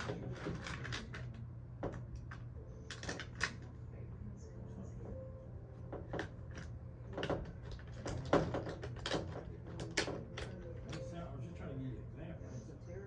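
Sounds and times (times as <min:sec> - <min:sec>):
plastic toy pieces clacking: 0:00.0 - 0:01.4, 0:02.2 - 0:03.7, 0:06.1 - 0:11.0.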